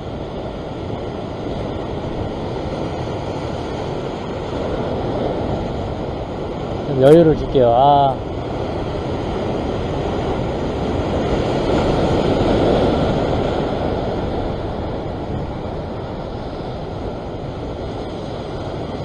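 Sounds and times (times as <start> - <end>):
sea surf washing against rocks: 0.0 - 19.0
wind on microphone: 0.0 - 19.0.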